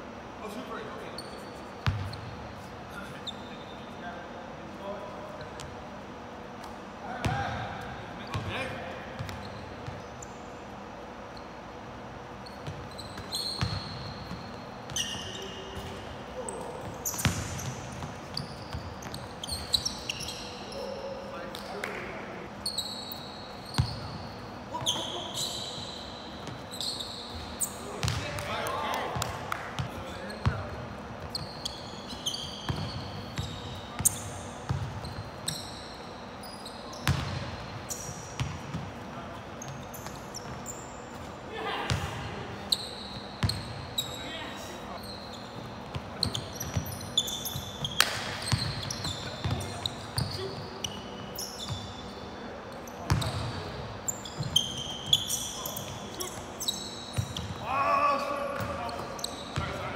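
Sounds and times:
sneakers squeaking on floor: 0.4 - 4.2, 4.8 - 59.9.

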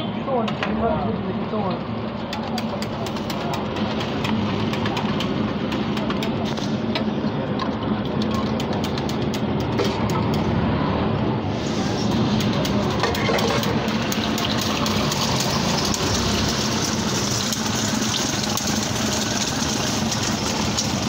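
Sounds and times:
oil crackling on griddle: 11.8 - 21.0.

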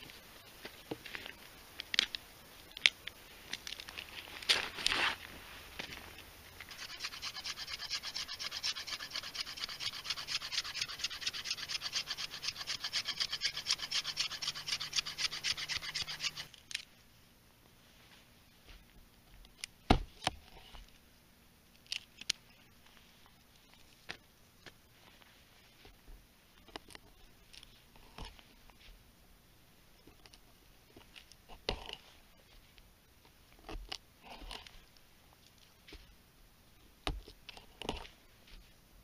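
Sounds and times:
knife scraping wood: 6.6 - 16.6.

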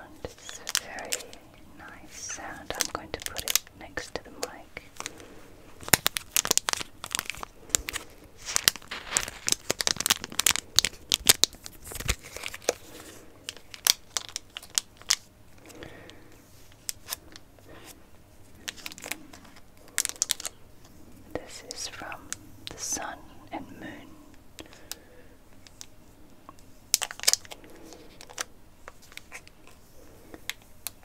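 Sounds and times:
plastic wrapper crinkling: 0.2 - 20.6, 26.9 - 31.0.

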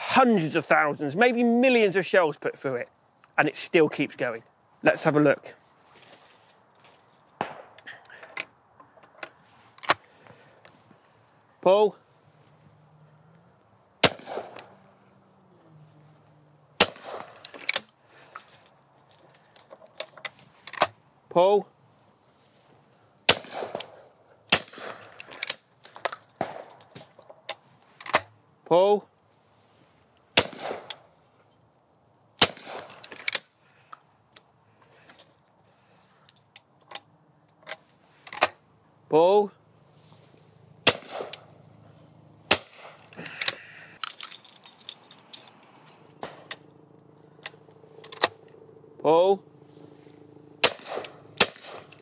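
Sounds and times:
shotgun shots with echo: 7.4 - 7.8, 14.0 - 14.7, 16.8 - 17.4, 23.3 - 25.0, 30.4 - 30.9, 32.4 - 32.9, 40.8 - 41.5, 50.6 - 51.9
metallic clicks of gun action: 16.8 - 18.0, 24.7 - 28.3, 47.3 - 48.5
gun mechanism clicks and clacks: 17.0 - 18.5, 24.8 - 28.3, 32.6 - 34.5, 42.8 - 46.6, 47.3 - 48.6, 50.7 - 52.0.

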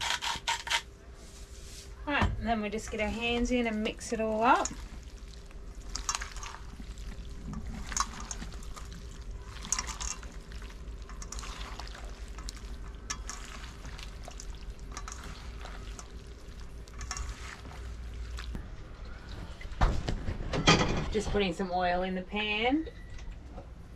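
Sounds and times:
wet squishes of squid in bowl: 2.9 - 19.6.

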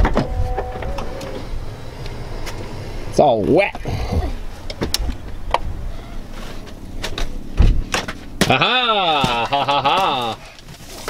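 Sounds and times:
loud wordless exclamation: 8.5 - 9.5.

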